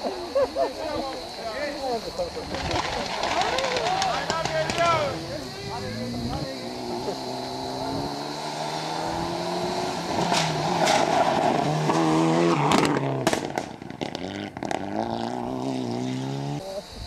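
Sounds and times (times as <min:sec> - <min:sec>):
sharp cracks: 0:02.4 - 0:05.3, 0:10.1 - 0:15.0
rally car engine revving past: 0:04.7 - 0:16.6.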